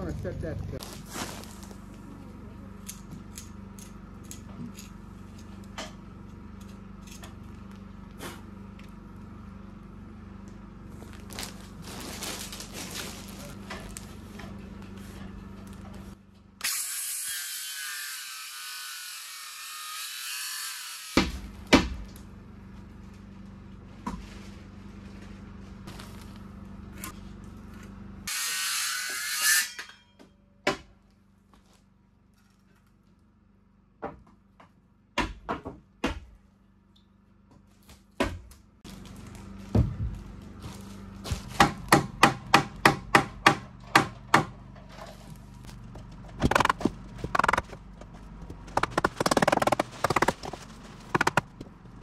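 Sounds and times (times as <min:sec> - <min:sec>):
wood knocking: 0:46.0 - 0:51.7.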